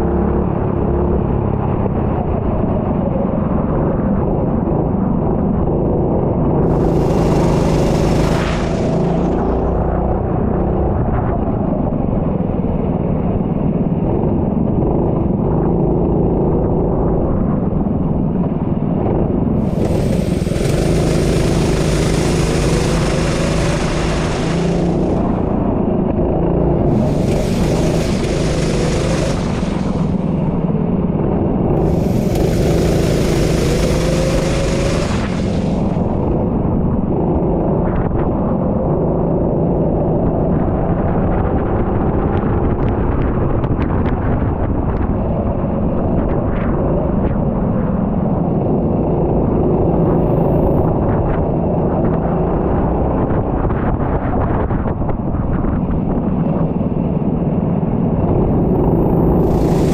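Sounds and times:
wind gusts on microphone: 0.0s - 59.9s
kart engine running: 6.6s - 10.2s, 19.4s - 36.7s, 58.5s - 59.9s.

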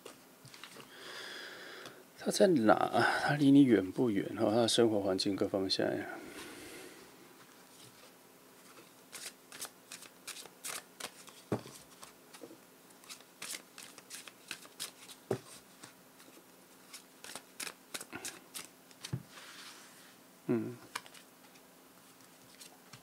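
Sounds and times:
cards being shuffled: 8.7s - 19.6s, 20.9s - 21.6s.

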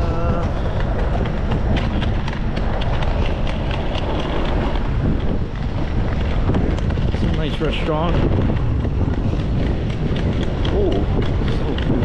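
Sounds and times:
footsteps on pavement: 0.0s - 12.0s
wind rumble on microphone: 0.0s - 12.0s.

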